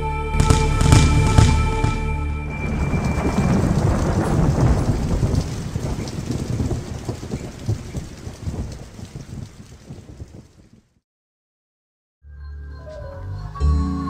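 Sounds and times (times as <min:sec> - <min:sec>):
low rumbling crackling noise: 0:00.4 - 0:11.0.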